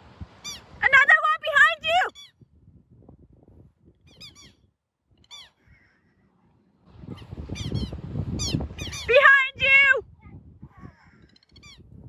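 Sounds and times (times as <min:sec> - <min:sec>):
bird alarm calls: 0:04.1 - 0:04.6, 0:05.2 - 0:06.0, 0:07.2 - 0:09.1.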